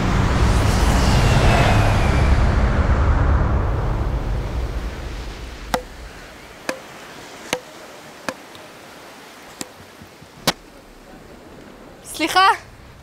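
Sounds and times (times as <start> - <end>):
low rumbling whoosh: 0.0 - 6.4
ball knocking on wooden paddles: 5.7 - 8.6.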